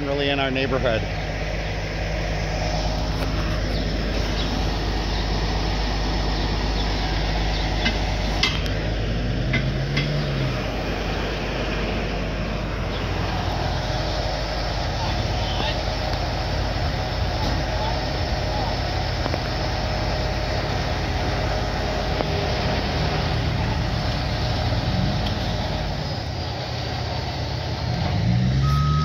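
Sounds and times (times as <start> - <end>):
diesel engine running: 0.0 - 29.0
low rising and falling tone: 1.6 - 15.3.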